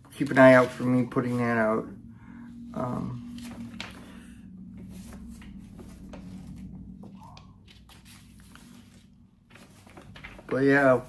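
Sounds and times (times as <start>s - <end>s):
paper pages rustling: 0.0s - 1.6s, 3.2s - 11.0s
low steady hum: 0.0s - 11.0s.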